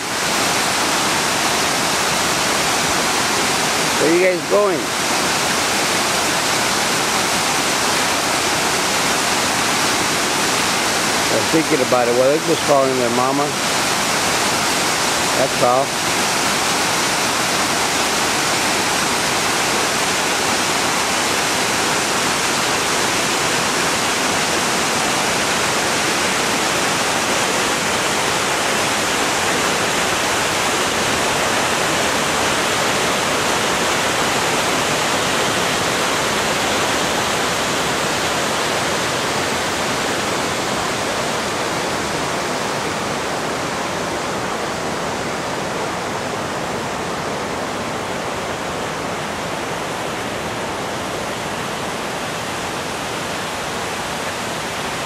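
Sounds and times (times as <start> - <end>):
running water rushing: 0.0 - 55.0.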